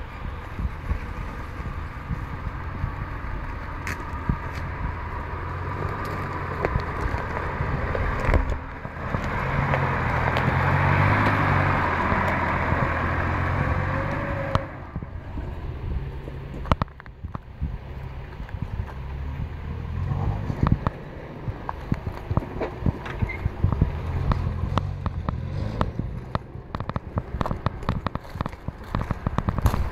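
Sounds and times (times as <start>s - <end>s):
engine running at low revs: 0.0s - 29.9s
twigs cracking against vehicle: 3.4s - 4.8s, 5.6s - 14.8s, 21.6s - 29.9s.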